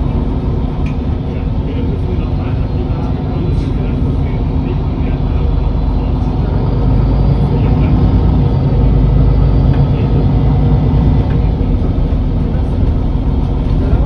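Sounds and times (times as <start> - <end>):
bus diesel engine idling: 0.0 - 14.0.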